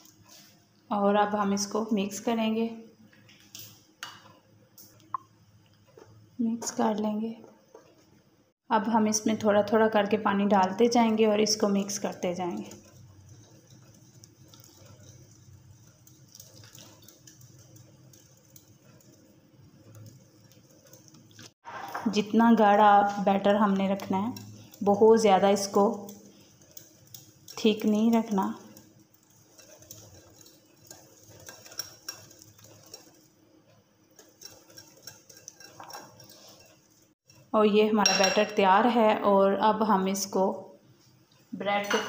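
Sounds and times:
wire whisk stirring batter: 0:10.3 - 0:21.6, 0:22.5 - 0:38.5.

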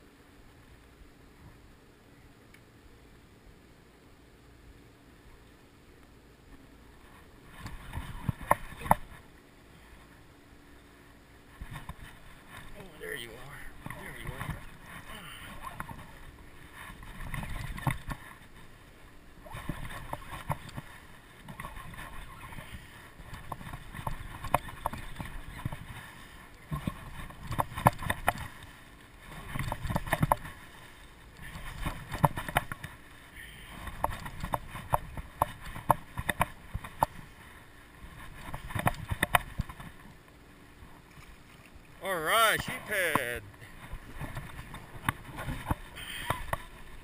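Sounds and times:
water slapping against boat: 0:07.4 - 0:09.3, 0:11.4 - 0:40.2, 0:40.8 - 0:47.0.

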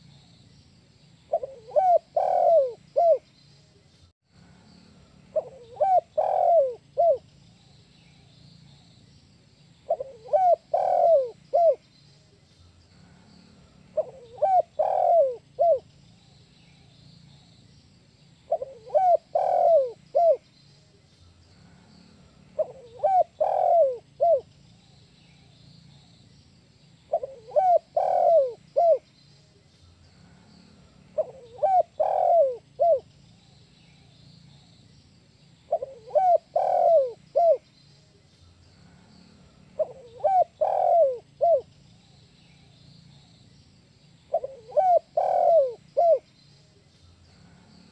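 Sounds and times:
dove cooing: 0:01.3 - 0:03.2, 0:05.3 - 0:07.2, 0:09.9 - 0:11.8, 0:14.0 - 0:15.8, 0:18.5 - 0:20.4, 0:22.6 - 0:24.5, 0:27.1 - 0:29.0, 0:31.1 - 0:33.1, 0:35.7 - 0:37.6, 0:39.7 - 0:41.7, 0:44.3 - 0:46.3.

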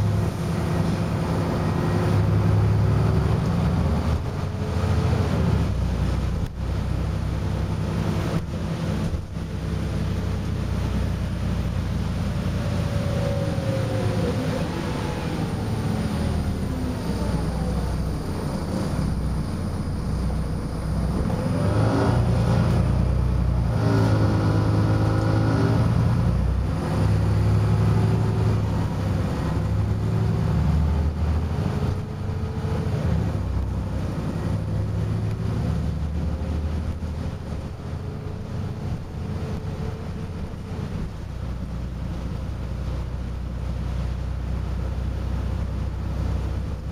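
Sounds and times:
bus engine rumble and whine: 0:00.0 - 0:46.9.

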